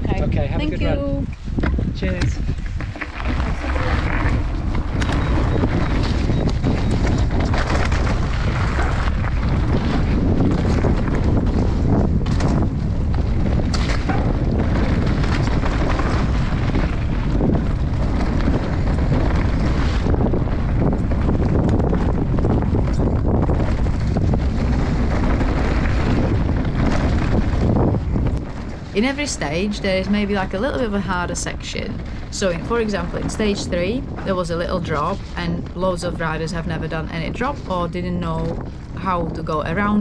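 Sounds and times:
mountain bike rumbling on gravel: 0.0s - 40.0s
wind buffeting microphone: 0.0s - 40.0s
bike knocks and rattles: 2.6s - 30.9s.

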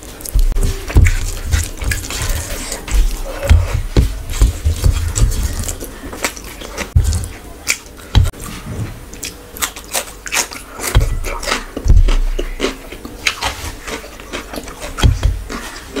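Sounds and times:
wet chewing and smacking: 0.0s - 8.4s, 9.1s - 16.0s
dull thumps: 0.3s - 5.9s, 8.1s - 9.0s, 10.9s - 12.6s, 15.0s - 15.6s.

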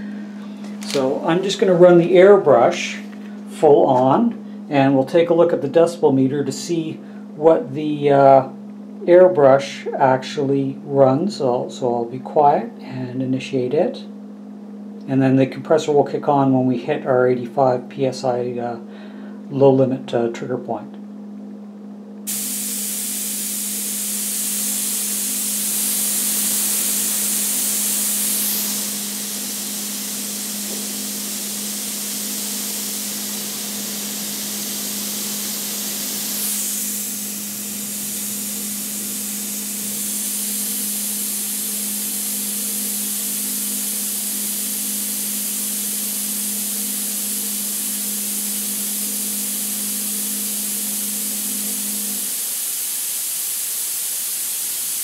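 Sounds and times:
airbrush air hiss: 0.0s - 3.2s, 22.3s - 55.0s
low hum: 0.0s - 52.4s.

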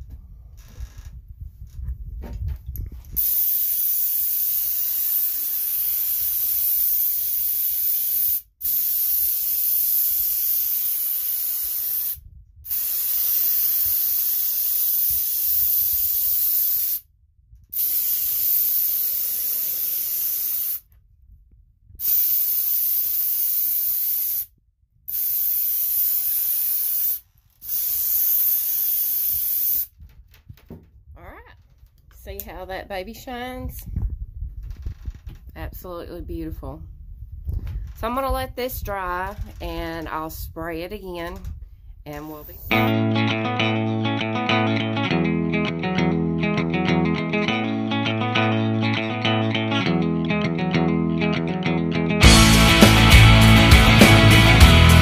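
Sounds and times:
spray gun hissing: 3.2s - 17.0s, 17.8s - 20.8s, 22.0s - 24.5s, 25.1s - 29.9s.

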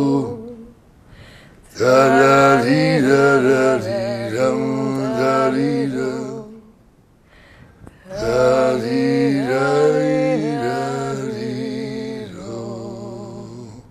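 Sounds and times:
person singing unaccompanied: 0.0s - 0.8s, 1.7s - 6.8s, 8.0s - 13.8s.

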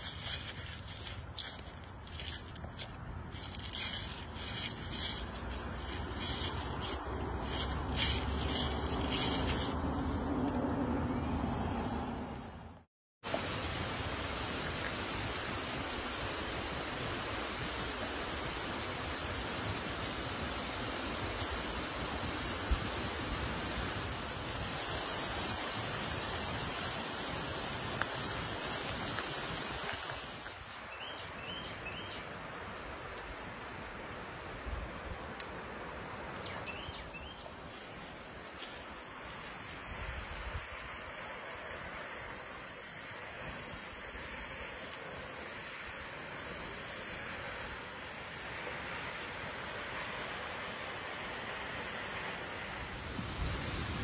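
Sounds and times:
footsteps crunching on dry leaves: 0.0s - 10.6s, 36.8s - 41.0s
steady rushing outdoor noise: 0.0s - 54.0s.

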